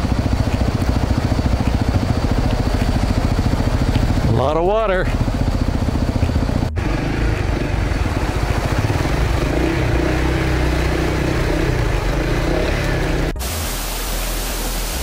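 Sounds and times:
motorcycle engine running: 0:00.0 - 0:13.4.

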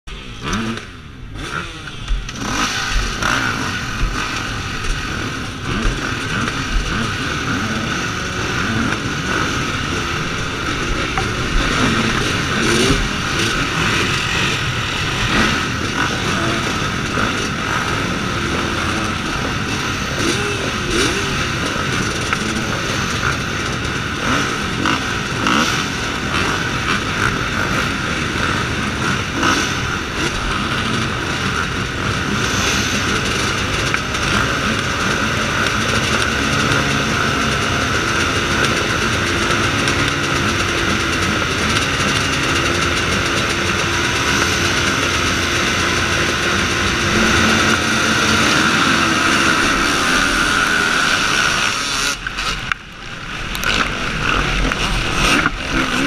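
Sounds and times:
motocross engines revving: 0:00.1 - 0:56.0.

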